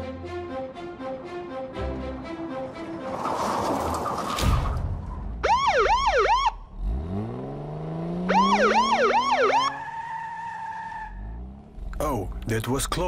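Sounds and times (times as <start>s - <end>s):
police siren yelps: 5.4s - 6.6s, 8.3s - 11.2s
car engine revving: 5.9s - 13.0s.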